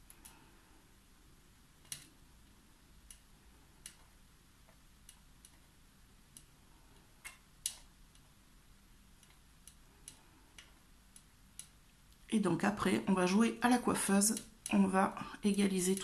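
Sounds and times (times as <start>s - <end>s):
crochet hook clicking on cord: 6.3s - 8.4s, 15.7s - 16.0s.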